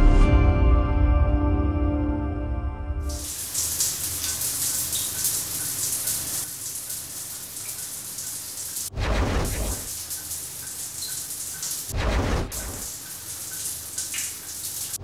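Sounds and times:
shower water spraying: 3.1 - 15.0
water rushing: 3.1 - 15.0.

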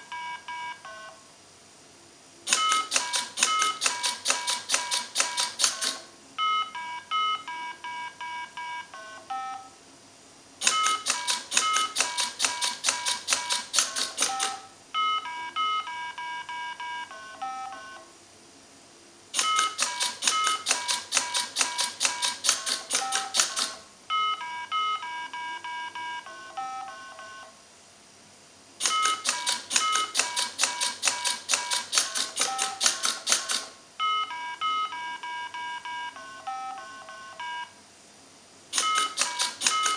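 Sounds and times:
electronic game beeps: 2.5 - 4.0, 14.2 - 18.0
rapid mechanical button clicking: 2.5 - 6.0, 10.6 - 14.6, 19.4 - 23.8, 28.8 - 33.7, 38.8 - 39.9.

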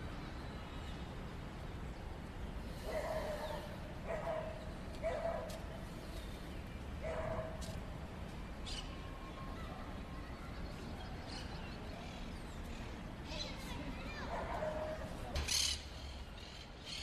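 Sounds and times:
dog barking: 2.9 - 5.6, 7.0 - 7.7, 14.3 - 15.1.

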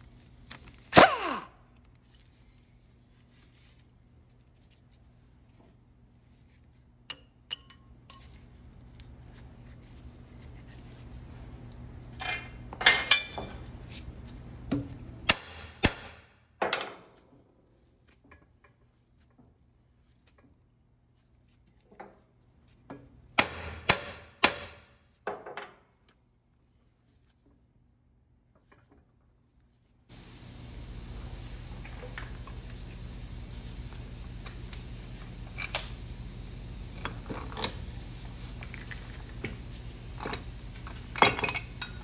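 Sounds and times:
metal tools clinking: 41.1 - 42.0.

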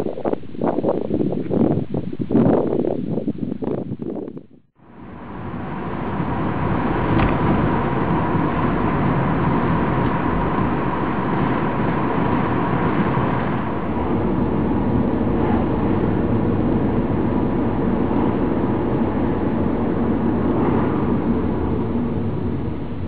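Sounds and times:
car engine: 4.8 - 23.0
road noise: 4.8 - 23.0.

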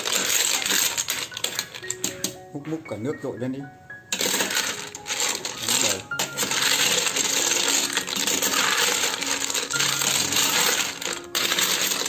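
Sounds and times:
snail shells rattling in metal pot: 0.0 - 2.4, 4.1 - 12.0.

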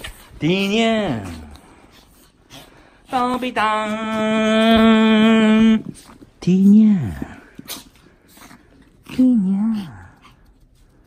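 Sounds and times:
person calling a dog: 3.1 - 7.4.

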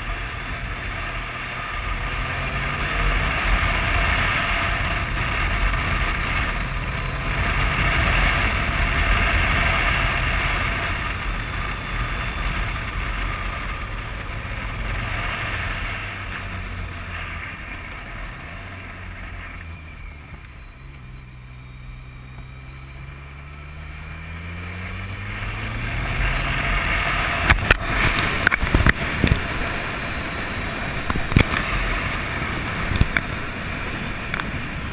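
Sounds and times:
motorcycle engine running: 0.0 - 34.9
wind rush on microphone: 25.1 - 34.9.

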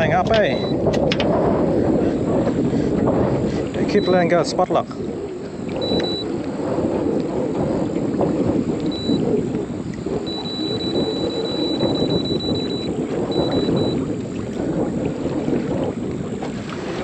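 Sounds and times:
water washing against boat hull: 0.0 - 17.0
wind buffeting microphone: 0.0 - 17.0
electric motor high whine: 5.6 - 16.4.

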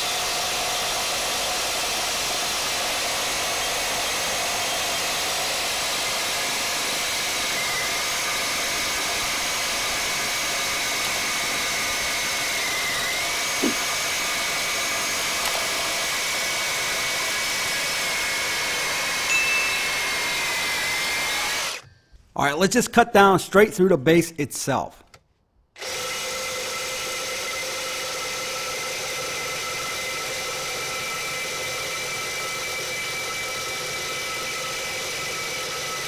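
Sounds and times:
reciprocating saw cutting steel: 0.0 - 21.9.

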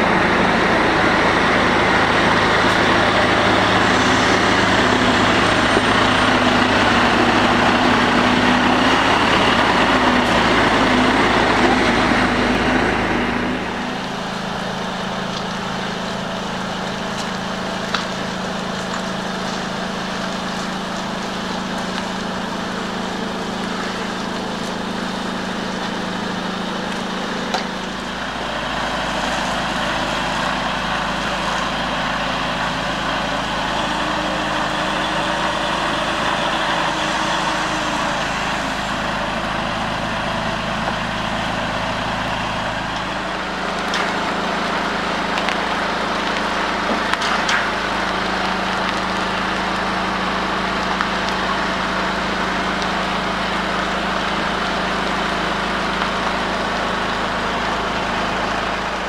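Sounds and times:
approaching truck rumble: 0.0 - 59.0
truck diesel engine running: 0.0 - 59.0.

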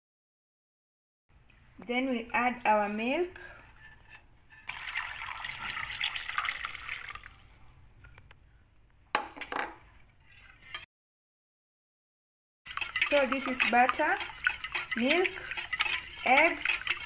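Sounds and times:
milk pouring into bowl: 4.7 - 7.7.

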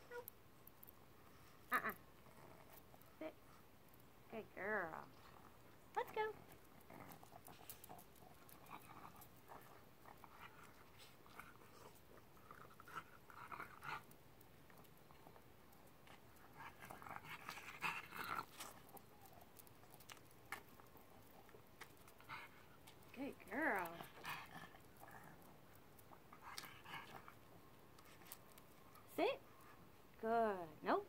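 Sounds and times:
dog steps clicking on pavement: 6.3 - 29.1
dog panting: 16.1 - 30.0.

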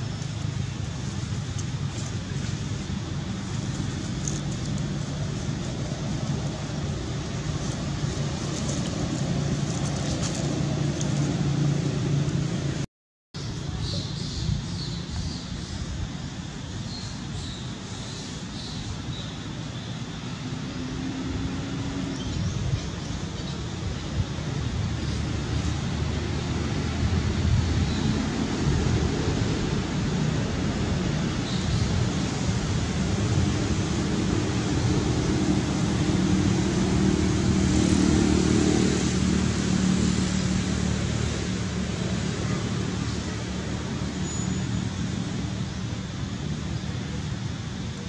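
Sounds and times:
constant hiss: 0.0 - 12.8, 13.4 - 48.0
wind buffeting microphone: 20.5 - 44.2.

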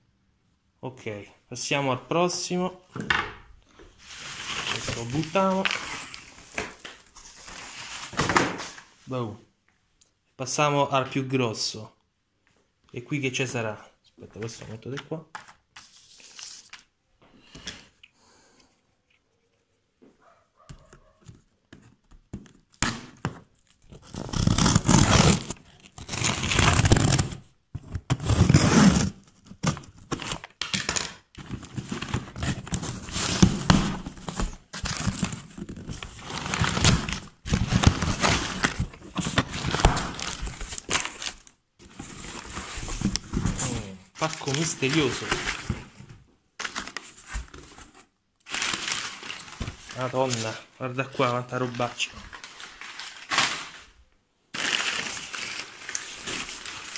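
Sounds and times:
cardboard box being torn open: 23.9 - 27.4.

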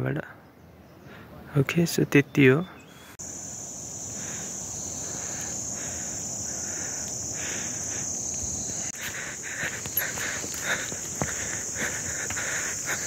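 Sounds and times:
pulsing low insect call: 0.1 - 13.0
high-pitched insect chorus: 0.5 - 13.0
footsteps on trail: 4.2 - 13.0.

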